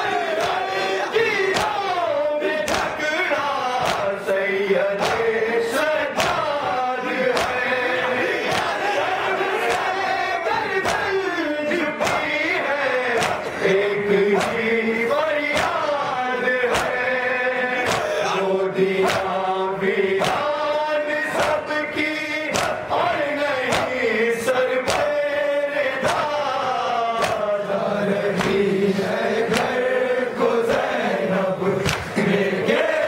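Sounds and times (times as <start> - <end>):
men chanting in unison: 0.0 - 33.0
hands slapping chests: 0.3 - 3.1, 3.7 - 4.2, 4.9 - 7.7, 8.3 - 10.1, 10.8 - 11.2, 11.8 - 14.7, 15.4 - 17.1, 17.7 - 18.3, 19.0 - 19.4, 20.2 - 20.6, 21.3 - 21.6, 22.4 - 23.0, 23.6 - 25.2, 26.0 - 27.6, 28.3 - 28.7, 29.4 - 29.8, 31.7 - 32.4.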